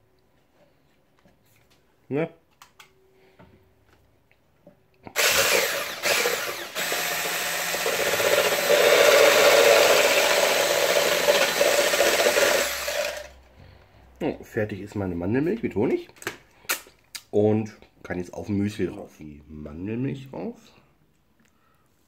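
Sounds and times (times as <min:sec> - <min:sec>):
electric hand blender whirring: 0:05.1 - 0:13.4.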